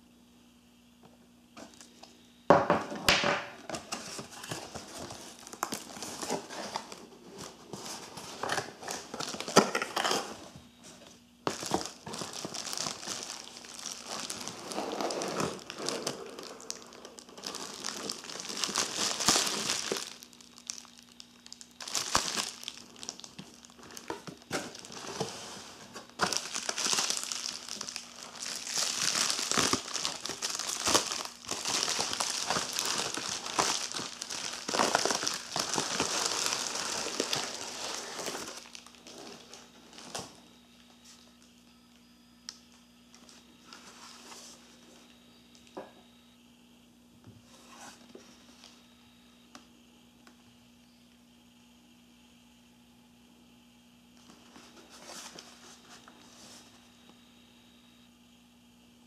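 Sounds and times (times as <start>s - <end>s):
plastic bubble wrap bag crinkling: 3.4s - 40.5s.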